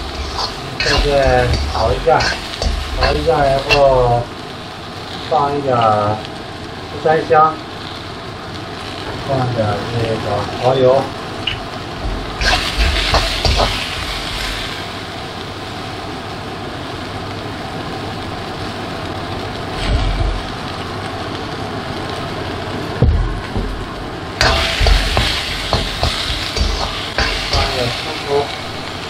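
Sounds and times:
metal spatula scraping: 0.0 - 4.1, 12.4 - 14.5, 24.4 - 28.5
vegetables sizzling in a wok: 0.0 - 29.0.

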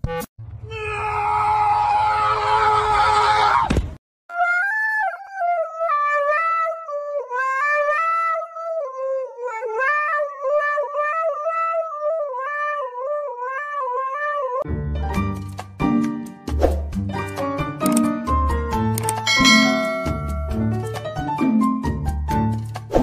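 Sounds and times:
dog howling into microphone: 0.7 - 3.7, 4.3 - 14.6.

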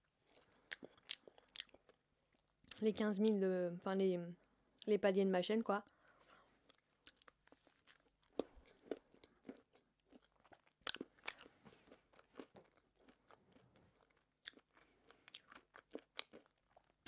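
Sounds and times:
chewing with wet mouth clicks: 0.4 - 2.8, 6.6 - 17.0.

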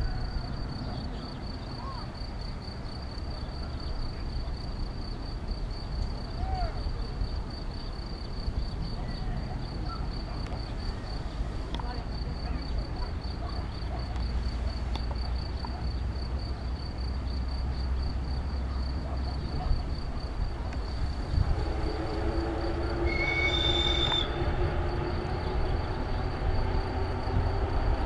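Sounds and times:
train rumbling past: 6.2 - 28.0
high wheel squeal: 21.5 - 24.6.

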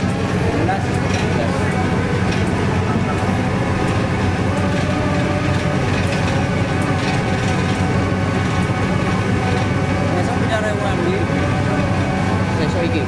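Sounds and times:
diesel engine low drone: 0.0 - 13.0
hydraulic whine: 0.0 - 13.0.

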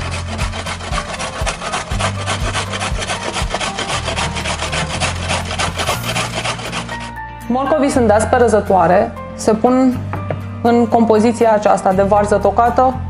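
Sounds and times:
carrots grated on metal grater: 0.0 - 7.1.

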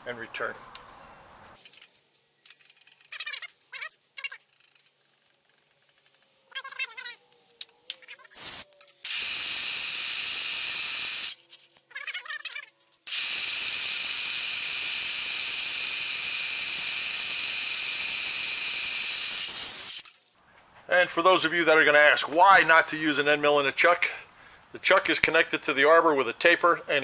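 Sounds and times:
compressed air hissing: 8.4 - 11.4, 13.1 - 20.0.

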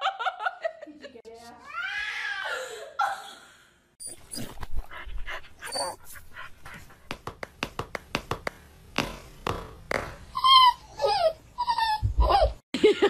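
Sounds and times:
dog whimpering and yipping: 5.6 - 6.0, 10.3 - 12.6.

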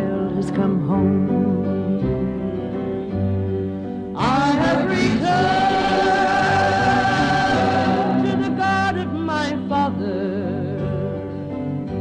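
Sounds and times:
soft instrumental accompaniment: 0.0 - 12.0.

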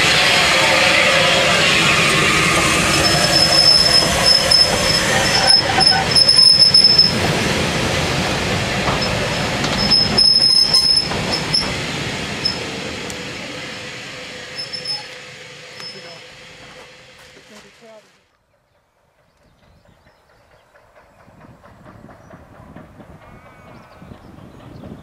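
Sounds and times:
train wheels on rails: 0.0 - 25.0
high metallic wheel squeal: 0.2 - 7.4, 8.9 - 12.9, 13.8 - 16.6.

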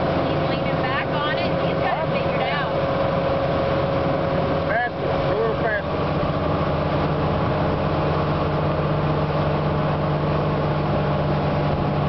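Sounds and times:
boat engine droning: 0.0 - 12.0.

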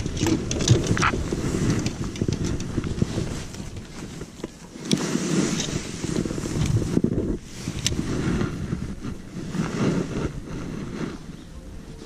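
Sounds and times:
fishing reels clicking and knocking: 0.0 - 3.8
wind on microphone: 0.0 - 12.0.

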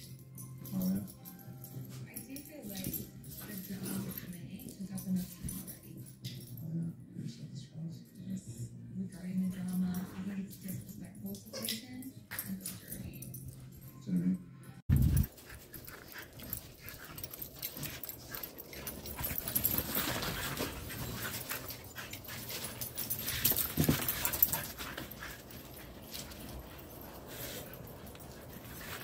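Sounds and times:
dogs panting: 0.4 - 6.6, 14.9 - 29.0
dogs running on snow: 15.0 - 27.7.

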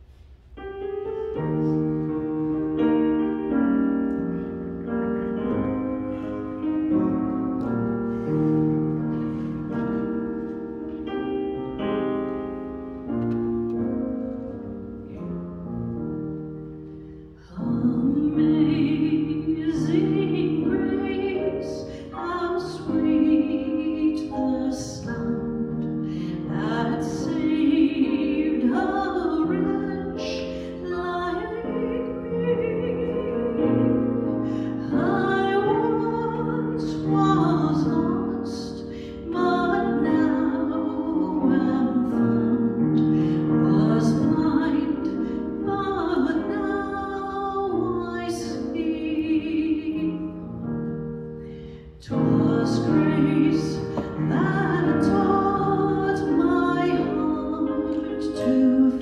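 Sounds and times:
piano playing: 0.0 - 59.0
person singing with vibrato: 17.4 - 50.4.

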